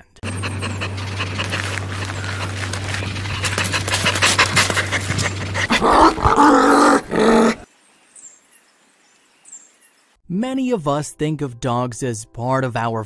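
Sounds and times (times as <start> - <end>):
steady low hum: 0.2 - 6.1
dog panting: 0.2 - 6.6
dog vocalising: 0.2 - 7.6.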